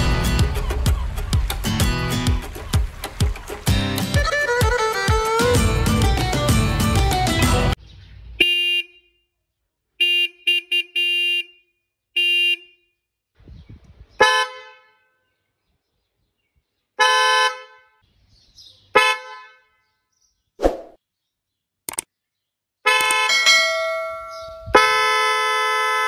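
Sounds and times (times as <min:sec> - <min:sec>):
high-pitched horn honks: 0:22.9 - 0:26.0
low-pitched motorcycle horn: 0:24.7 - 0:26.0.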